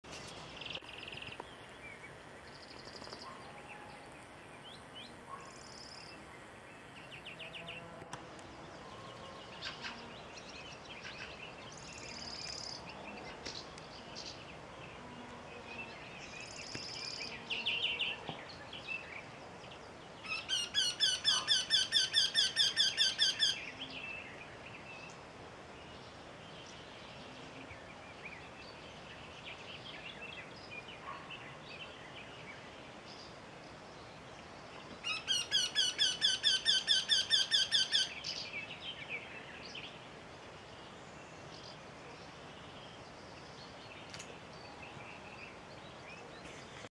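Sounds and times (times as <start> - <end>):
small birds chirping: 0.1 - 25.2.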